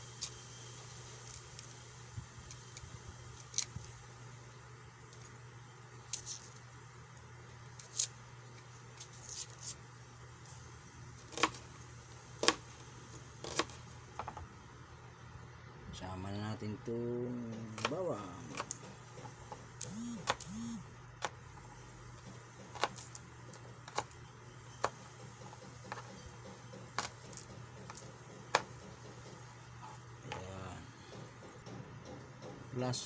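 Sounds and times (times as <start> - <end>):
knife slicing onion: 11.2 - 11.7, 12.4 - 12.7, 13.4 - 13.9.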